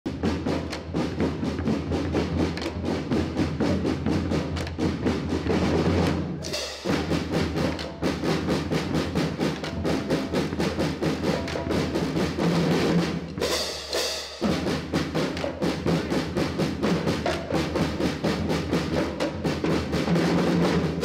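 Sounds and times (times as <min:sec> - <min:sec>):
snare and bass drums beating: 0:00.0 - 0:21.0.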